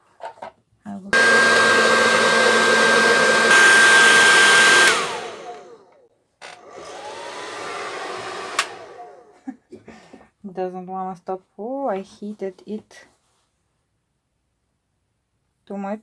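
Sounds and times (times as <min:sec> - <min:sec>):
hair dryer whining: 0:01.1 - 0:09.5
hair dryer switch click: 0:08.5 - 0:08.8.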